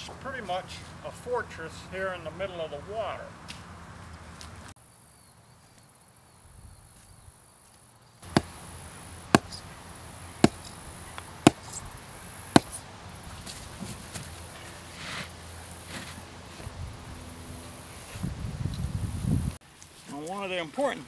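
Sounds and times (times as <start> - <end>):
hammer pounding wooden stake: 8.2 - 8.6, 9.3 - 9.6, 10.4 - 10.7, 11.4 - 11.7, 12.5 - 12.8.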